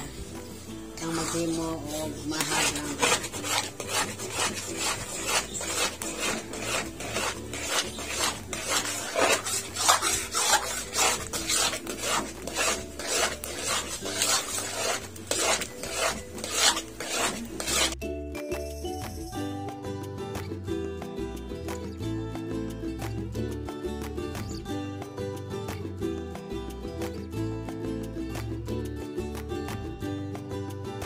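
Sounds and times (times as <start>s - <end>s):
music: 0.0s - 31.0s
metal spoon stirring in a pan: 1.0s - 18.0s.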